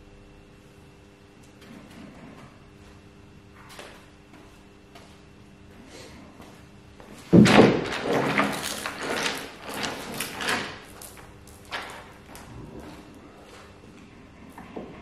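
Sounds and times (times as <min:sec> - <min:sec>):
steel chain rattling and clanking: 0:07.4 - 0:12.6.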